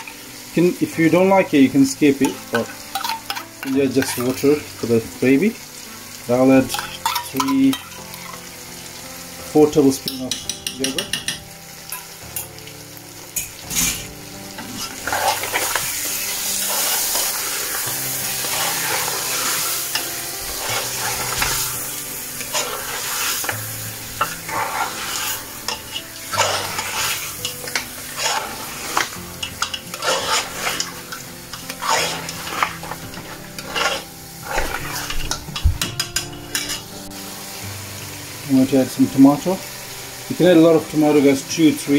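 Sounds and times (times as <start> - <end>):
food sizzling: 0.0 - 41.9
metal spoon scraping a pot: 2.2 - 4.6, 6.7 - 8.4, 13.4 - 19.9, 20.5 - 23.6, 24.2 - 35.4, 36.1 - 36.9.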